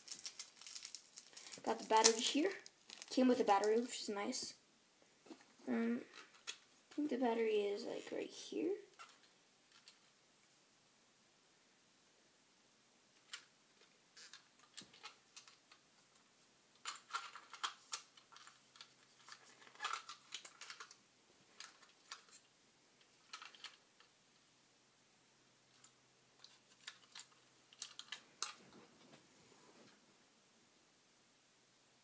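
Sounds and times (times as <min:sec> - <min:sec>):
hands handling plastic item: 0:00.0 - 0:04.0, 0:13.2 - 0:24.1, 0:25.8 - 0:29.2.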